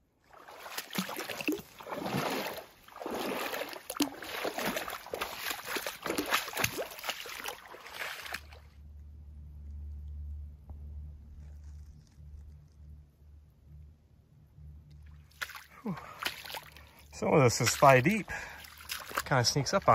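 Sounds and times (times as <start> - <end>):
low steady hum: 0.0 - 19.9
legs sloshing through water: 0.2 - 8.7, 15.2 - 19.9.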